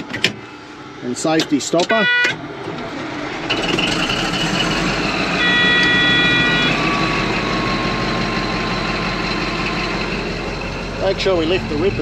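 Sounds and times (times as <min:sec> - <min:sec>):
bulldozer engine running: 0:00.0 - 0:12.0
electronic alarm tone: 0:05.4 - 0:08.2.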